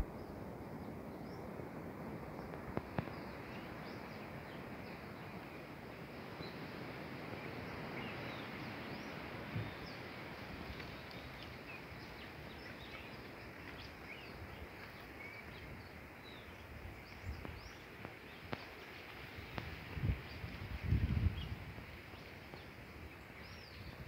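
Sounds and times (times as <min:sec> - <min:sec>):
steady outdoor hiss: 0:00.0 - 0:24.0
small birds chirping: 0:07.4 - 0:24.0.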